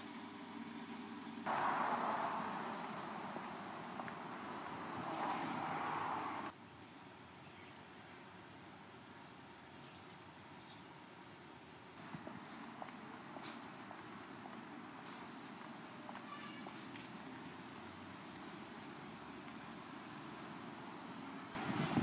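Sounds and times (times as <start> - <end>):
loud rushing noise: 1.5 - 6.5
insects trilling: 1.5 - 22.0.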